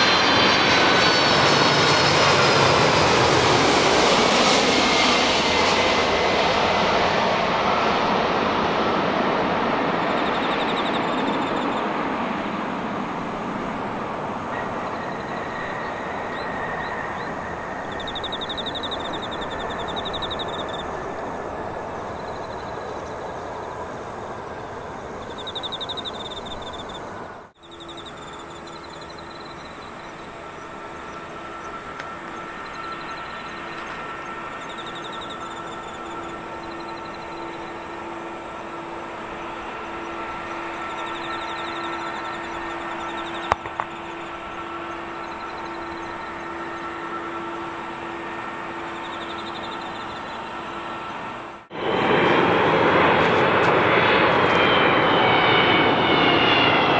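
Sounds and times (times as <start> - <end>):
jet engine rush and whine: 0.0 - 56.9
jet engines idling hum: 0.0 - 56.9
birds chirping: 9.8 - 53.6.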